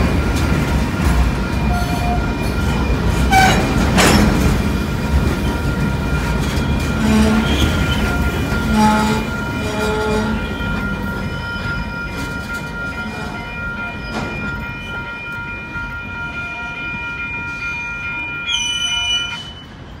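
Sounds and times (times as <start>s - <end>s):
steel wheels rumbling on rails: 0.0s - 20.0s
high-pitched wheel squeal: 18.4s - 19.7s.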